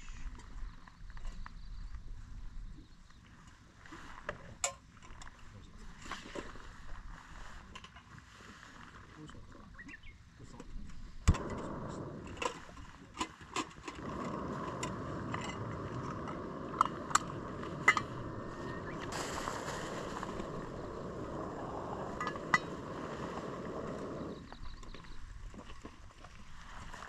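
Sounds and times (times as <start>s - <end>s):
clicks and knocks of handling pot: 12.2s - 19.1s, 22.0s - 24.0s
gas stove hissing: 13.9s - 24.5s.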